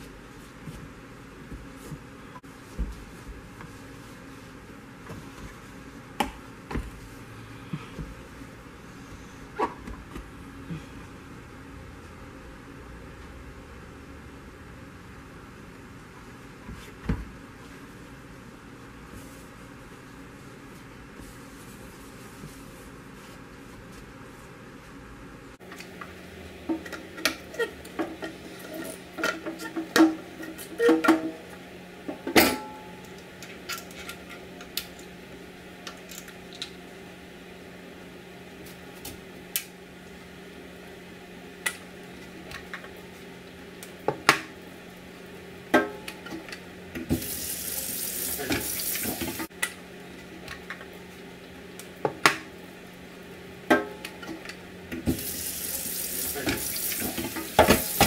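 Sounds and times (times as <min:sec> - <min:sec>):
tap water running: 0:47.1 - 0:49.5, 0:55.1 - 0:58.0.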